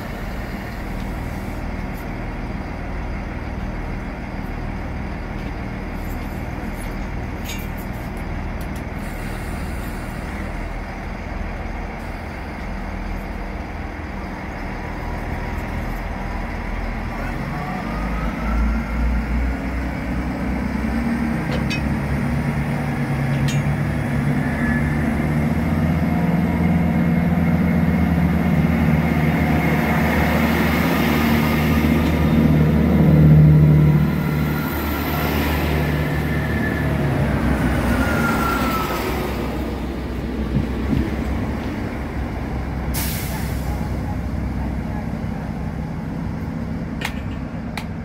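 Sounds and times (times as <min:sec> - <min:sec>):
diesel train engines droning: 0:00.0 - 0:48.0
wheel and rail noise: 0:00.0 - 0:48.0.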